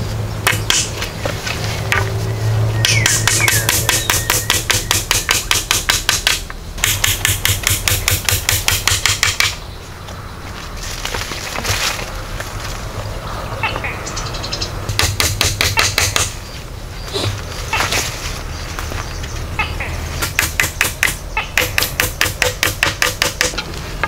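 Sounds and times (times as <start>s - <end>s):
hatchet striking wood: 0.4s - 1.1s, 2.8s - 9.6s, 14.9s - 16.4s, 20.2s - 23.7s.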